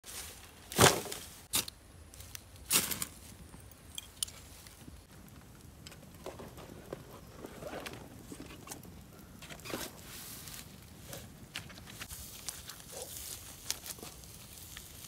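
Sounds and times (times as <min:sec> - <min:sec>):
hands rustling dry leaves: 0:04.4 - 0:15.0.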